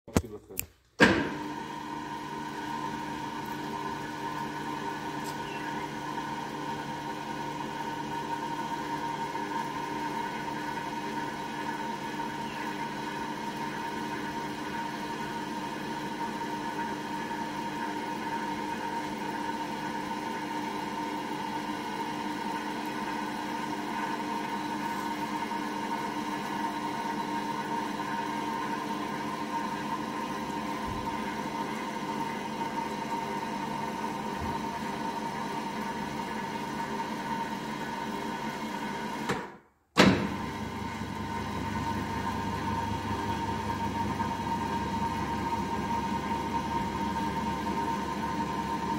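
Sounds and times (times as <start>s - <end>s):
loud clunk: 1.0s - 1.4s, 39.3s - 40.4s
lift motor humming: 1.0s - 48.9s.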